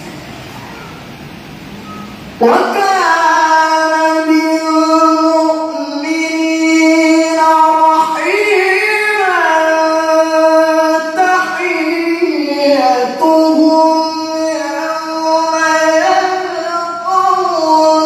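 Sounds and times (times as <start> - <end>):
man reciting melodically into microphone: 2.4 - 18.0.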